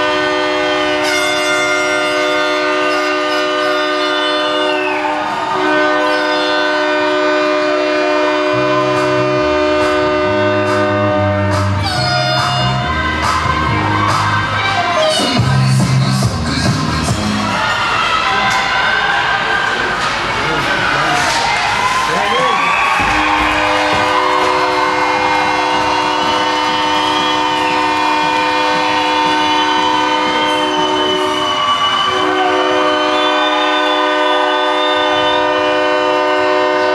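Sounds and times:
goal horn sounding: 0:00.0 - 0:04.9, 0:05.6 - 0:13.0, 0:23.0 - 0:36.9
bass line: 0:08.2 - 0:17.6.

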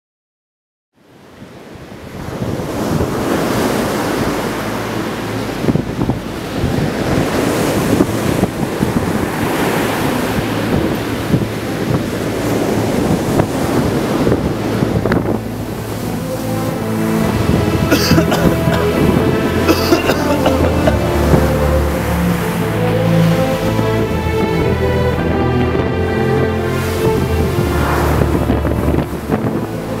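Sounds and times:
wind: 0:00.9 - 0:30.0
ocean surf breaking on beach: 0:01.0 - 0:30.0.

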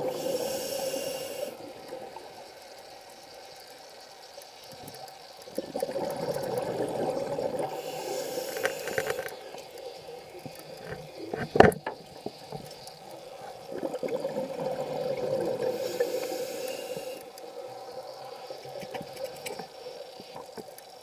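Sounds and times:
exhaled bubbles streaming underwater: 0:05.4 - 0:21.0.

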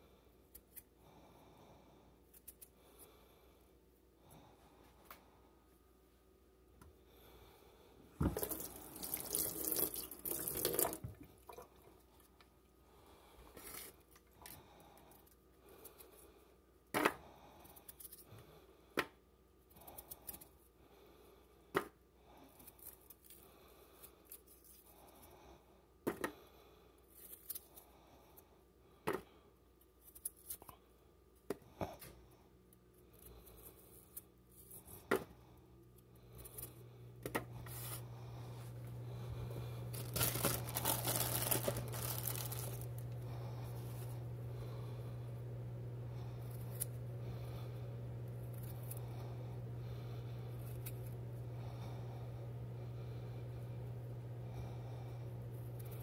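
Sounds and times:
low hum: 0:35.5 - 0:56.0.

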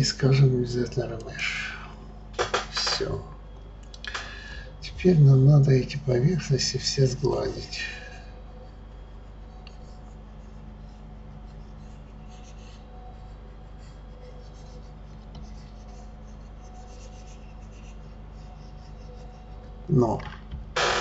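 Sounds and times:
low electrical hum: 0:00.0 - 0:21.0
mouse rubbing on desk: 0:08.6 - 0:19.9.

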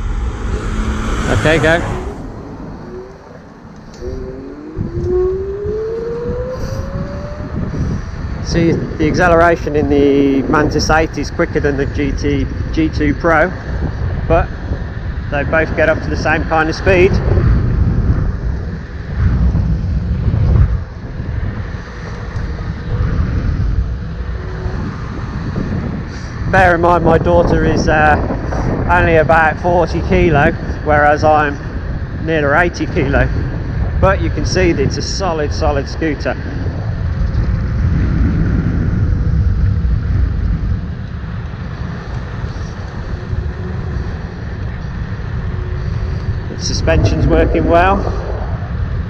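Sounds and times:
wind buffeting microphone: 0:00.0 - 0:49.0.

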